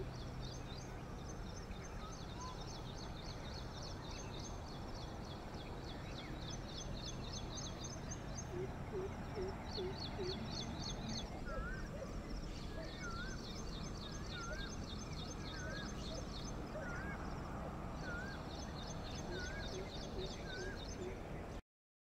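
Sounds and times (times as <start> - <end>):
low background noise: 0.0 - 21.6
wavy whistled bird call: 1.8 - 2.9, 7.7 - 17.4, 18.0 - 21.2.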